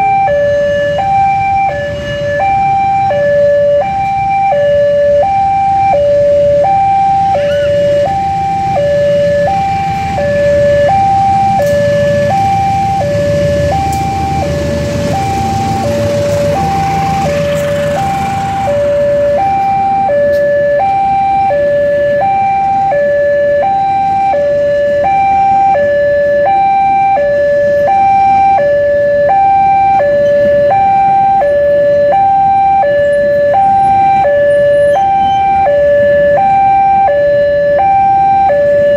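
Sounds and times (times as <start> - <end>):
level crossing alarm two-tone: 0.0 - 38.9
train rumbling past: 8.1 - 19.4.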